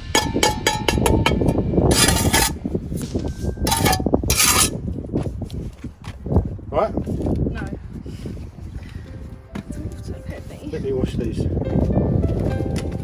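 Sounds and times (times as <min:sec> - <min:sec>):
trowel scraping mortar: 0:01.9 - 0:04.8.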